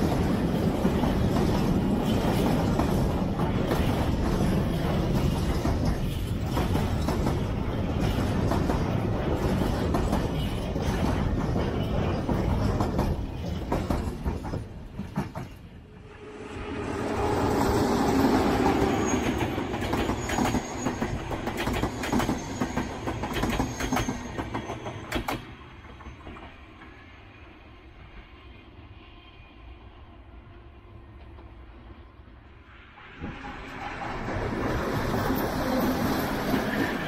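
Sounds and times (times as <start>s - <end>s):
wheels clicking over rail joints: 0.0s - 15.8s
freight train rolling past: 0.0s - 37.0s
passenger train passing: 0.0s - 37.0s
thin wheel squeal: 16.2s - 21.3s.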